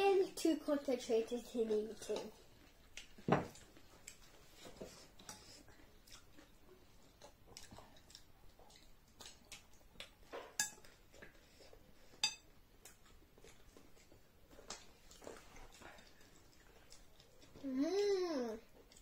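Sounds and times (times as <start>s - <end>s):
spoons clinking against bowls: 10.5s - 10.9s, 12.2s - 12.4s.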